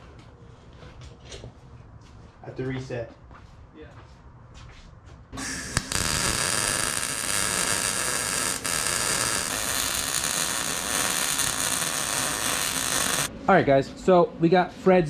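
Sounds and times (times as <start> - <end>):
welding arc crackling: 5.4 - 13.3.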